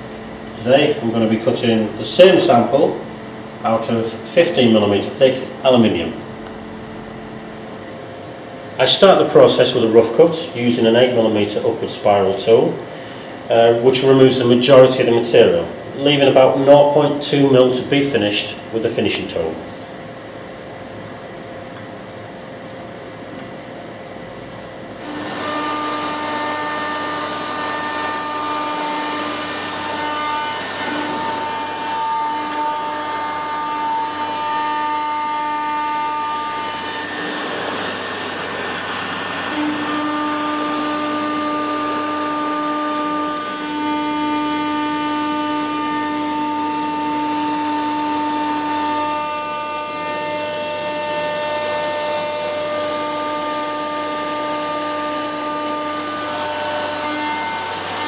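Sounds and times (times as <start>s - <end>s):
router spindle milling metal: 25.0s - 58.0s.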